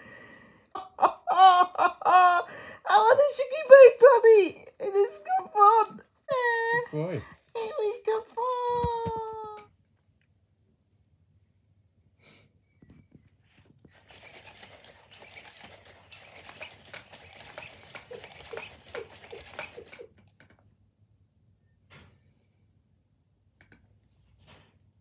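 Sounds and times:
short balloon squeaks: 0:13.8 - 0:20.2
soft clicks: 0:23.6 - 0:23.9.

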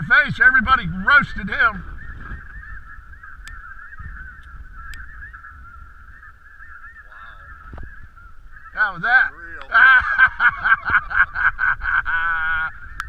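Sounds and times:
geese calling: 0:00.0 - 0:13.0
faint clicks: 0:03.4 - 0:03.6.

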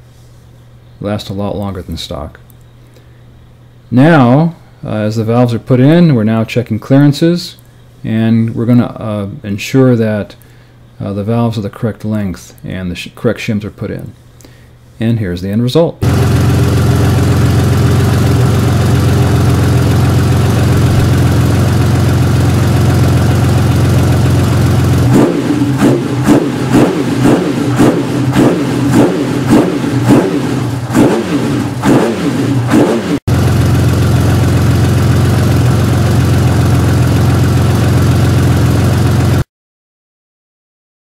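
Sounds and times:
motorcycle engine idling: 0:16.0 - 0:32.2, 0:33.3 - 0:39.4
engine throttle blips: 0:16.0 - 0:39.4.

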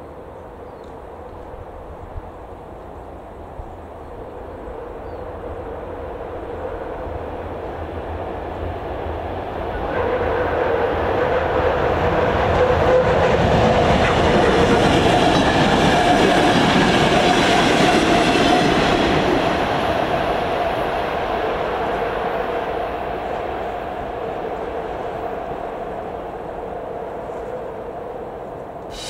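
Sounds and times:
diesel train passing: 0:00.0 - 0:29.0.

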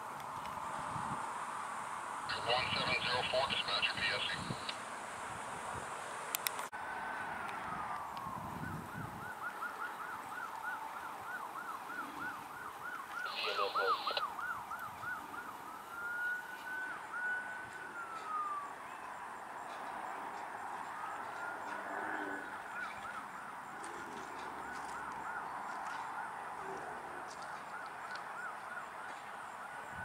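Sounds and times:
emergency siren wailing and yelping: 0:07.3 - 0:30.0.

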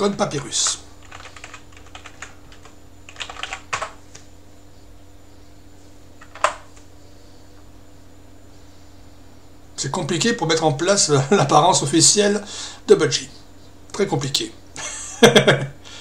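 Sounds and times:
low steady hum: 0:00.0 - 0:16.0
typing on computer keyboard: 0:01.0 - 0:04.0.

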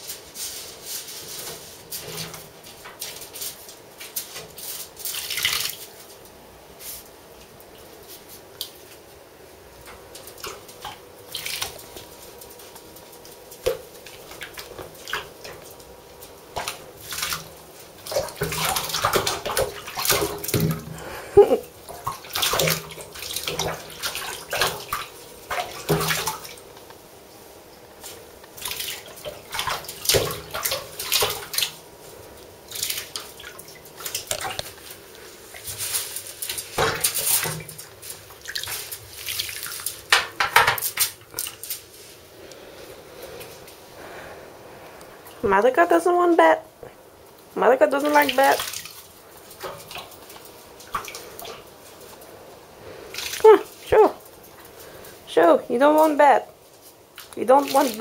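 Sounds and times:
ferret splashing in water: 0:01.1 - 0:06.2, 0:09.8 - 0:26.8, 0:28.0 - 0:42.2, 0:47.8 - 0:55.2, 0:55.8 - 0:58.0.

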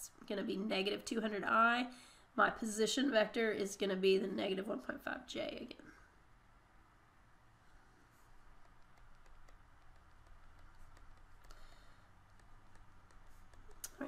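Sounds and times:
low steady hum: 0:00.0 - 0:14.0
stylus tapping on tablet screen: 0:08.2 - 0:14.0.

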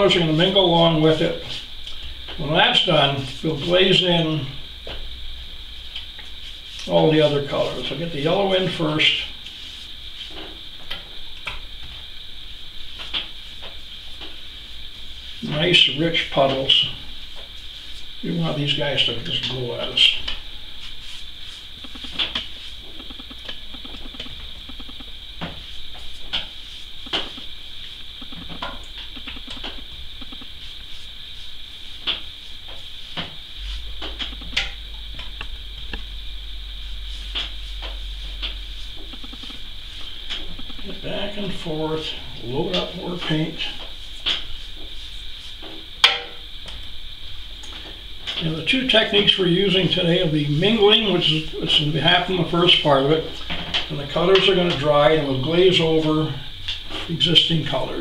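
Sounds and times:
faint room hiss: 0:00.0 - 0:58.0
brush stroking wet paper: 0:06.2 - 0:10.6, 0:12.9 - 0:23.2, 0:25.6 - 0:28.1, 0:30.2 - 0:33.9, 0:36.8 - 0:45.9.

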